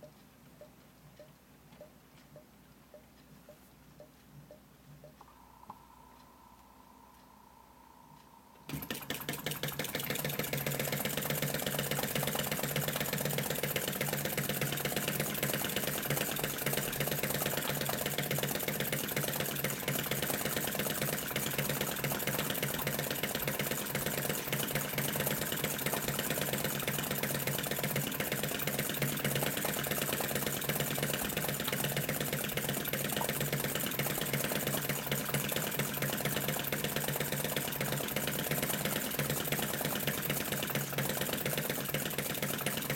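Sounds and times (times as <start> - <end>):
model engine clattering: 8.7 - 42.9.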